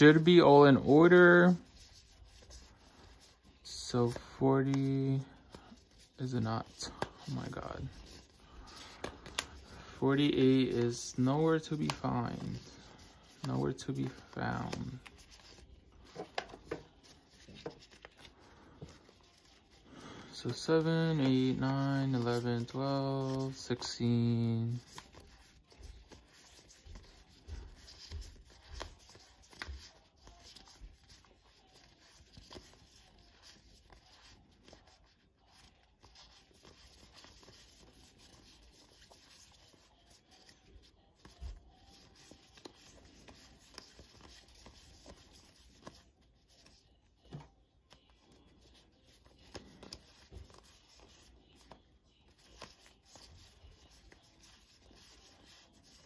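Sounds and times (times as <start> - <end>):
paper envelopes rustling: 0.0 - 56.0.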